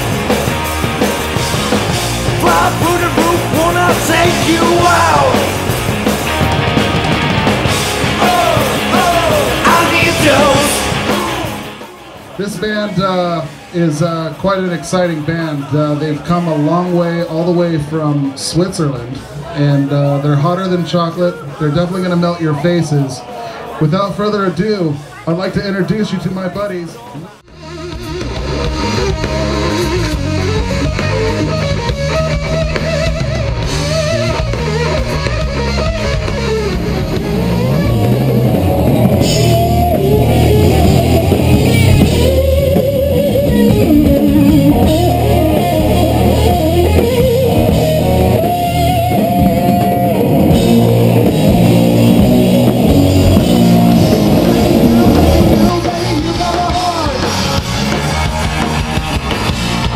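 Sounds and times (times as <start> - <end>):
drum kit: 0.0 - 11.9, 27.5 - 59.9
electric guitar lead lines: 0.0 - 12.0, 27.5 - 59.9
bass guitar: 0.0 - 12.6, 27.5 - 59.9.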